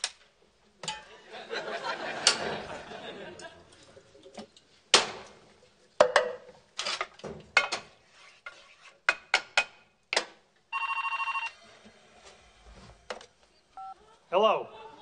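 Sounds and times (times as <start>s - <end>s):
telephone ringing: 10.7s - 11.6s.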